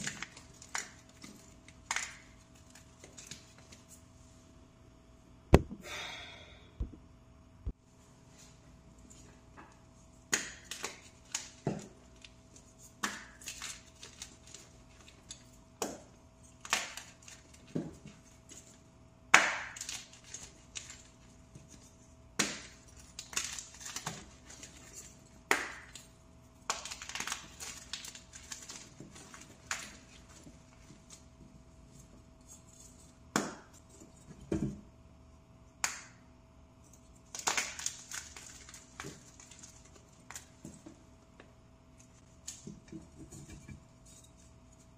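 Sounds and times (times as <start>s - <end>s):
powder blocks crunching by hand: 10.2s - 31.3s, 37.2s - 41.0s.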